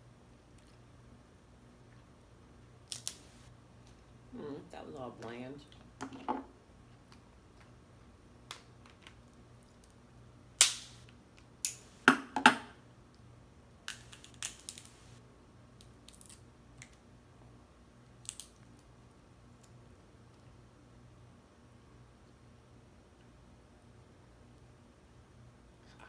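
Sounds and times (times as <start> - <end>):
crab shells cracking: 2.9 - 3.4, 13.9 - 15.0, 15.8 - 17.0, 18.2 - 18.8.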